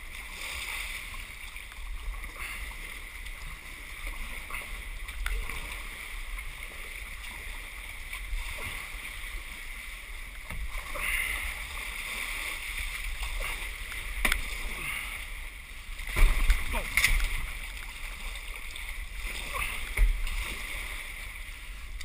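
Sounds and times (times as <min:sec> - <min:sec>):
kayak paddle strokes: 0:00.0 - 0:22.0
water sloshing around hull: 0:00.0 - 0:22.0.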